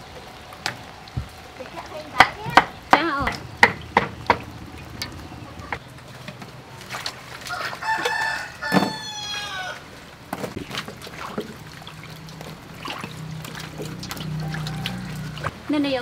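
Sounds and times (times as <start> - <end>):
rooster crowing: 7.5 - 9.9, 14.2 - 15.5.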